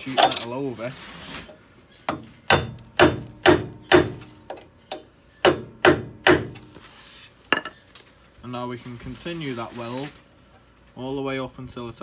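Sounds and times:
hammer striking steel plate: 2.1 - 4.3, 5.4 - 6.6.

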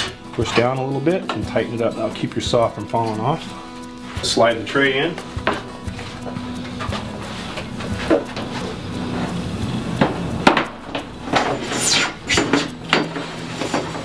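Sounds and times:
tray scraping squeal: 11.4 - 14.0.

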